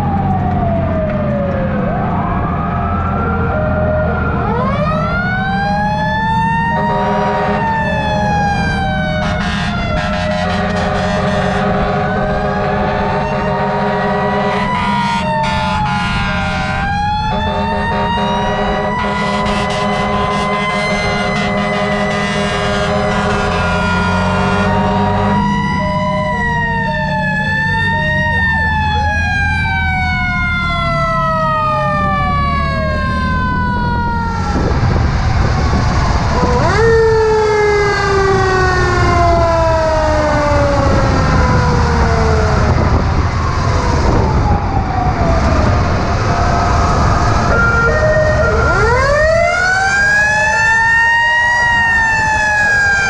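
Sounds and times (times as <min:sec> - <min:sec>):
heavy low truck rumble: 0:00.0 - 0:53.0
mechanical sirens wailing: 0:00.0 - 0:53.0
horn blasts: 0:06.8 - 0:07.8, 0:09.1 - 0:25.6.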